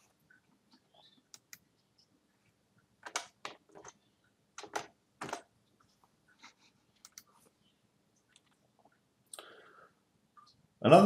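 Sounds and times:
computer keyboard clicks: 4.6s - 5.4s.

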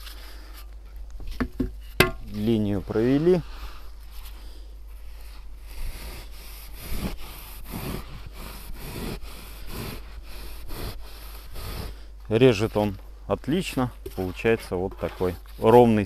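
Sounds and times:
knife sawing through insulation slab: 5.0s - 12.9s, 14.2s - 16.0s.

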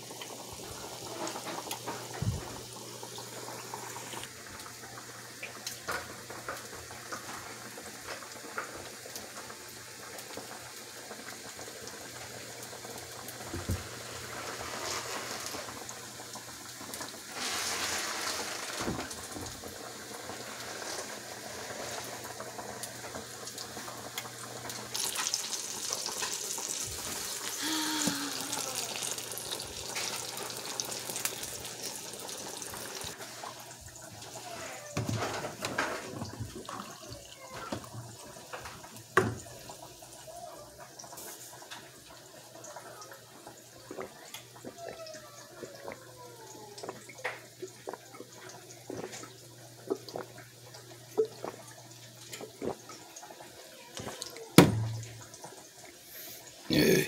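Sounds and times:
omelettes sizzling in oil: 0.0s - 57.0s.

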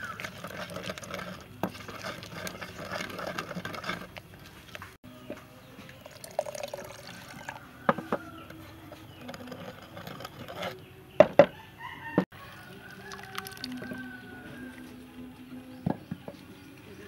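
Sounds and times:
sauce being stirred: 0.0s - 4.3s, 12.9s - 14.0s
liquid pouring into a mortar: 6.0s - 7.8s, 12.9s - 14.0s.

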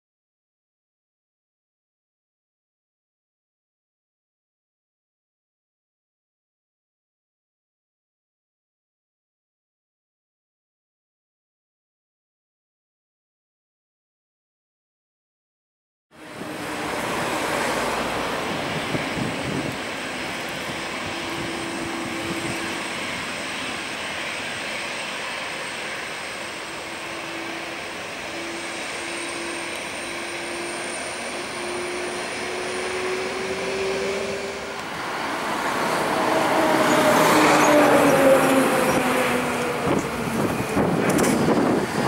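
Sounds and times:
jet engines whining: 16.2s - 42.0s.

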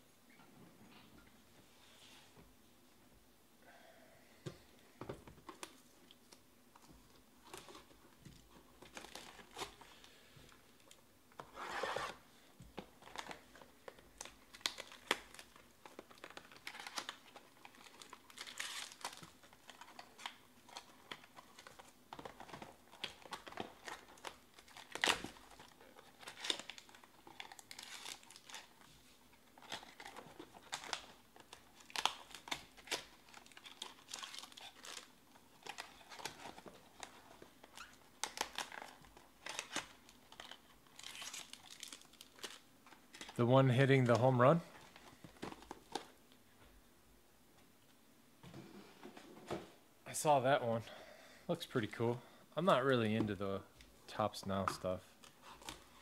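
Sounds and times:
foil packs crinkling: 12.8s - 46.2s.

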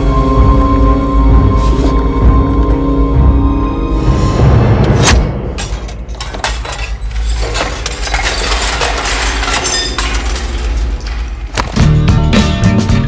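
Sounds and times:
glass crashing: 5.5s - 11.7s
glass clinking and rattling: 5.6s - 11.5s.

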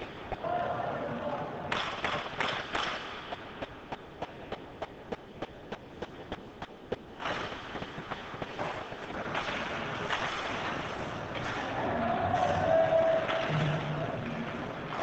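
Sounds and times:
arena noise: 0.0s - 2.5s, 11.2s - 15.0s
skates scraping ice: 0.0s - 15.0s
rhythmic clapping: 1.7s - 15.0s.

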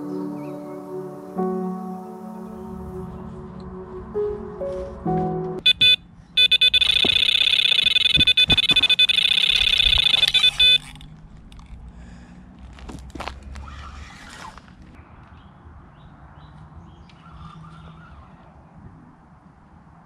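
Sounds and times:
soft background music: 0.0s - 5.7s
electronic bite alarm bleeping: 5.6s - 11.0s.

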